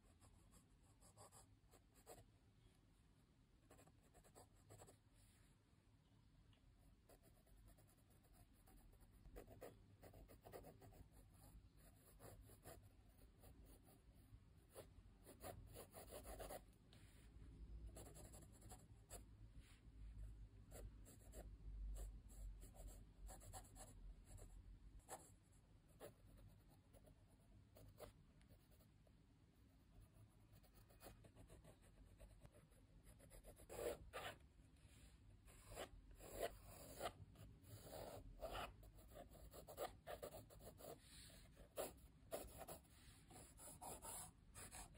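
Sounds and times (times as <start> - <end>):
pencil scratching on paper: 0.0 - 2.3, 3.7 - 5.0, 7.0 - 16.6, 17.9 - 19.2, 25.0 - 28.9, 30.0 - 34.4, 35.5 - 44.9.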